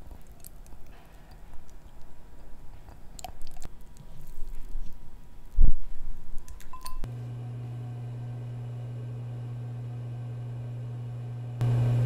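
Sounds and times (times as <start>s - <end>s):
microwave oven humming: 7.0s - 12.0s.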